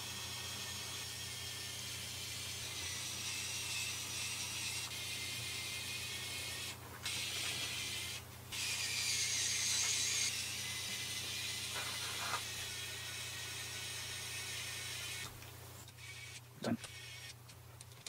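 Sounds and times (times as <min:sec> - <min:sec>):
electric screwdriver whirring: 0:15.9 - 0:17.4.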